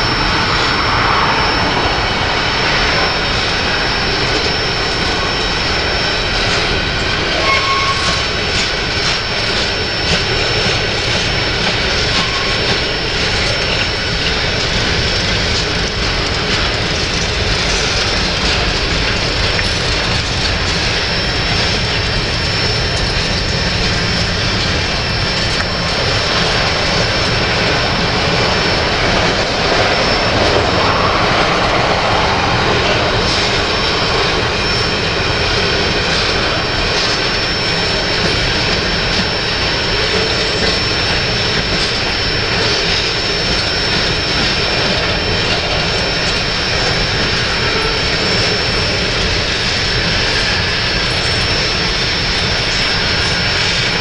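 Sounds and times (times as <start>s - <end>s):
thin high steady tone: 0.0s - 15.3s
steel wheels rolling on rails: 0.0s - 54.0s.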